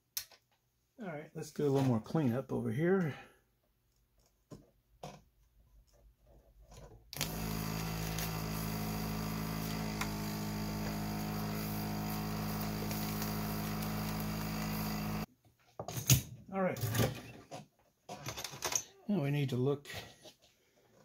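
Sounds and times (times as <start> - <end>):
desoldering vacuum pump humming: 7.2 - 15.3.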